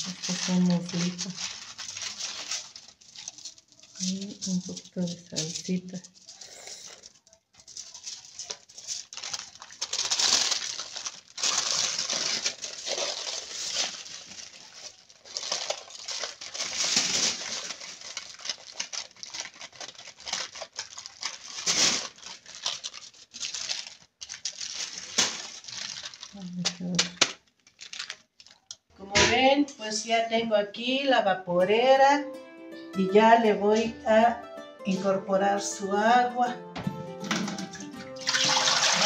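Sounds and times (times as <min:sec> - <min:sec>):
aluminium foil crinkling: 0:00.0 - 0:28.9, 0:37.2 - 0:39.0.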